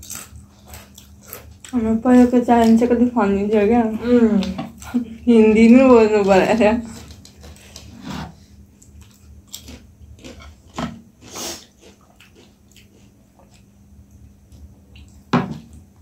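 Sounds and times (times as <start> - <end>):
close chewing and biting: 0.0 - 1.8, 8.8 - 13.7.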